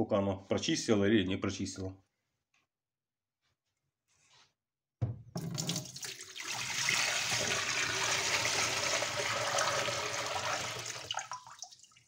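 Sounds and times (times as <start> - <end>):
water pouring into steel sink: 5.4 - 12.0
water swirling into drain: 5.4 - 12.0.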